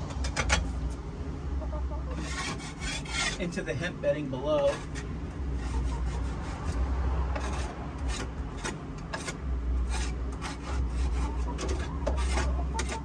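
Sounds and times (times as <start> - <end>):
knife scraping wooden bar: 2.1 - 3.6, 4.6 - 13.0.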